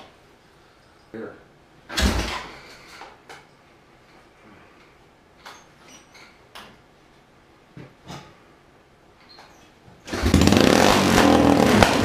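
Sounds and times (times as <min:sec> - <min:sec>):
engine starting and running: 0:10.1 - 0:12.0.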